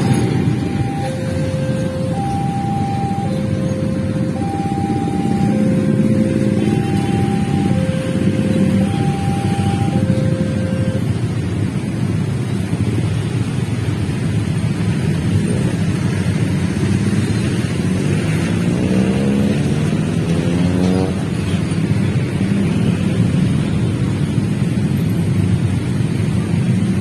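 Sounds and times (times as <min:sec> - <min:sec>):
engine revving: 0:00.0 - 0:10.5, 0:16.8 - 0:21.9
freight train rumbling: 0:00.0 - 0:18.4.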